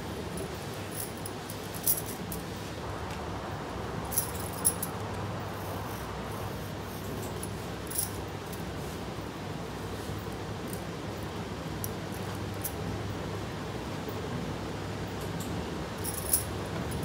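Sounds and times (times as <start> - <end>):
low background hum: 0.0 - 17.0.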